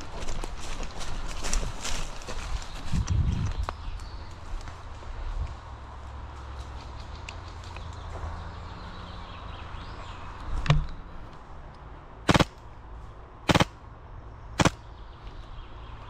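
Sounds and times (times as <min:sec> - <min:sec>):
airsoft rifle shots: 0:12.3 - 0:12.6, 0:13.5 - 0:13.8, 0:14.6 - 0:14.8.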